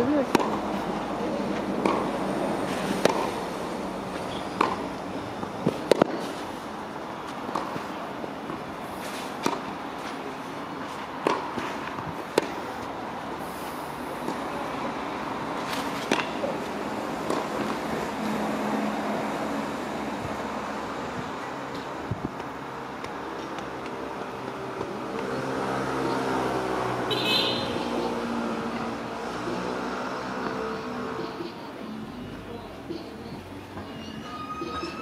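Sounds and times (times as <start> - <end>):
outdoor background hum: 0.0 - 14.4
ball bouncing: 0.2 - 0.6, 1.8 - 2.1, 3.0 - 3.4, 4.5 - 6.2, 16.0 - 16.4, 17.2 - 17.8
racket striking tennis ball: 0.2 - 0.6, 1.6 - 3.4, 4.1 - 6.5, 7.3 - 10.3, 10.9 - 12.7, 15.6 - 17.9.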